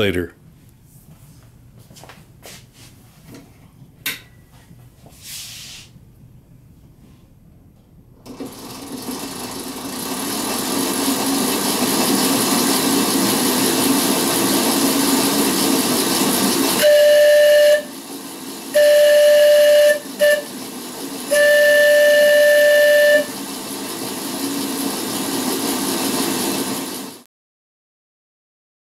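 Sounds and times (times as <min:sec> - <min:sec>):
steam hiss: 0:05.2 - 0:05.9
steam whistle blowing: 0:16.5 - 0:23.6.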